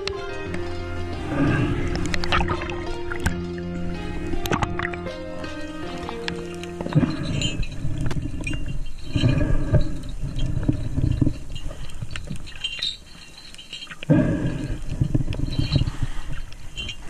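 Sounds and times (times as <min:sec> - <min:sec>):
background music: 0:00.0 - 0:08.1
underwater rushing and sloshing: 0:00.0 - 0:17.0
sharp clicks and crackles: 0:05.9 - 0:17.0.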